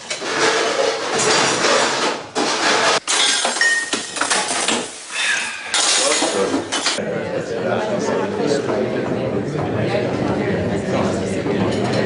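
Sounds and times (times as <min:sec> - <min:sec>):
plates pots and cutlery clinking: 0:00.0 - 0:05.0, 0:05.7 - 0:07.0.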